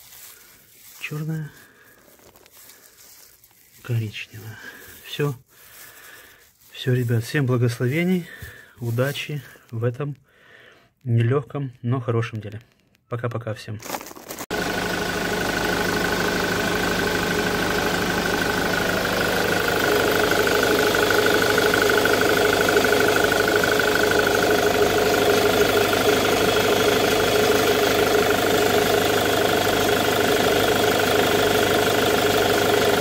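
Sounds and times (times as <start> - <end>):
diesel engine idling: 14.5 - 33.0.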